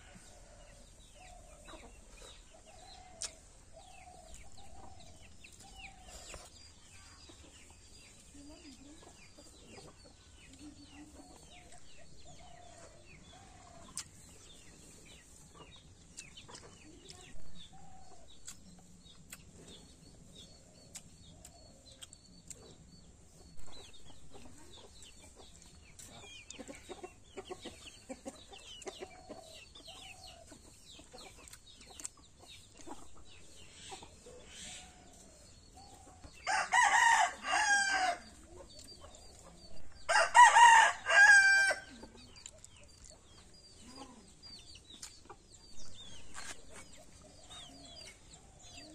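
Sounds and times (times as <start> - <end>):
chickens clucking: 0.0 - 48.9
small chirps: 18.2 - 24.1
rooster crowing: 36.5 - 38.2, 40.1 - 41.9.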